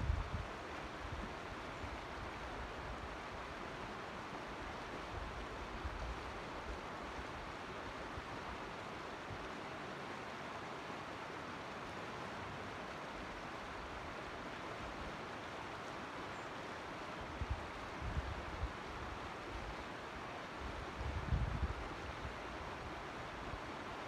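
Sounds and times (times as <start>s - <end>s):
wind rumble on microphone: 0.0s - 1.4s, 17.2s - 19.0s, 20.6s - 22.4s
creek water rushing: 0.0s - 24.0s.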